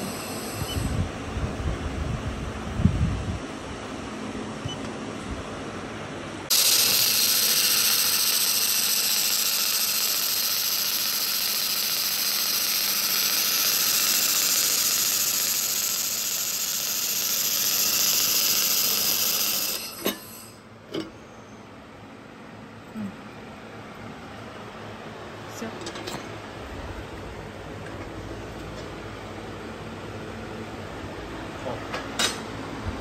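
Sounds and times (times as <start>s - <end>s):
laser welding hiss: 6.5s - 20.5s.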